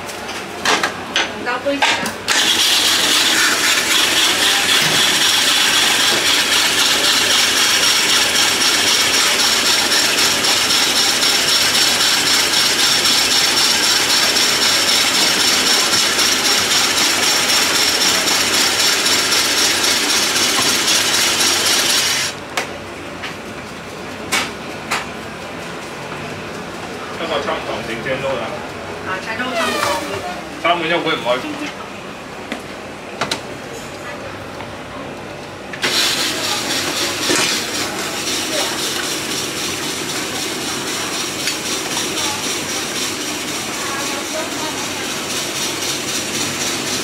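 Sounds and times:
ice-shaving machine scraping: 0:02.3 - 0:22.4, 0:29.4 - 0:30.3, 0:35.8 - 0:47.0.

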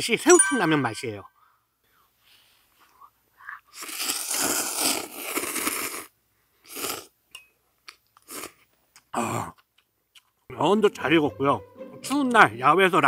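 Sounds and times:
person slurping noodles: 0:03.7 - 0:06.1, 0:06.7 - 0:07.1, 0:08.3 - 0:08.6.

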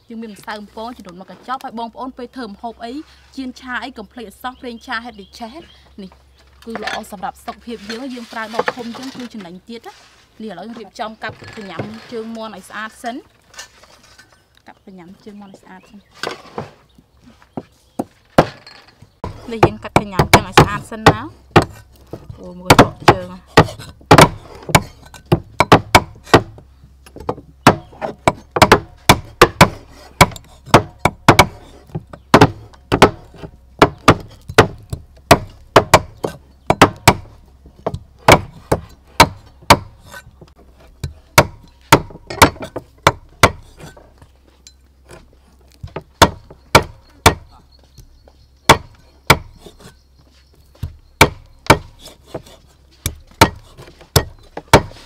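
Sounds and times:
cleaver chopping on wooden block: 0:17.6 - 0:18.6, 0:19.2 - 0:44.1, 0:45.1 - 0:49.9, 0:50.8 - 0:55.0.

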